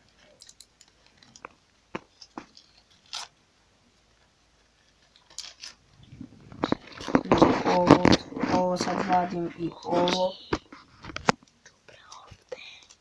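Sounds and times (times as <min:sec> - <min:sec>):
paper sticker packets crinkling: 0:06.4 - 0:11.2.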